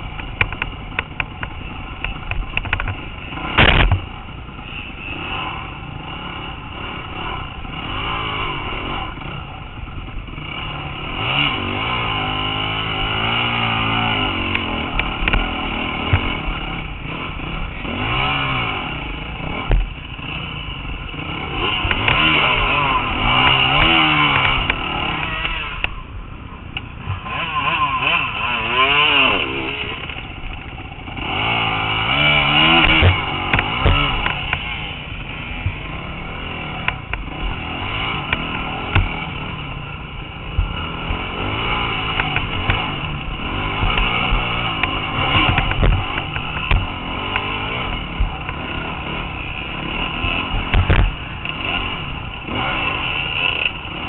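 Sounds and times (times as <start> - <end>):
dirt bike engine revving: 0.0 - 54.0
bike knocks and rattles: 0.1 - 4.2, 32.6 - 34.7, 41.4 - 48.7, 50.2 - 51.9.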